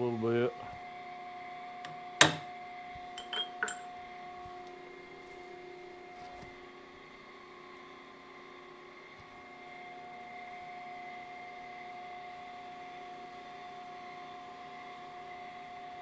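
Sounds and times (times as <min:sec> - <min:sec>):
machine hum with held tones: 0:00.0 - 0:16.0
metal-on-metal clinks: 0:03.2 - 0:03.9.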